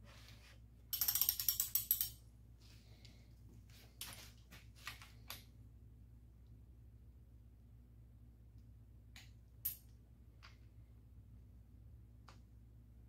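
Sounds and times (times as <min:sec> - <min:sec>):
ratchet wrench clicking: 0:00.9 - 0:02.2.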